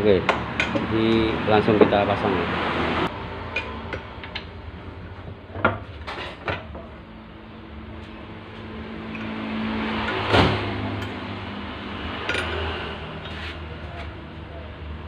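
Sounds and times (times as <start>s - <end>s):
metal clanks of vise and parts: 0.3s - 0.9s, 5.2s - 6.9s, 9.1s - 9.4s, 12.2s - 14.1s.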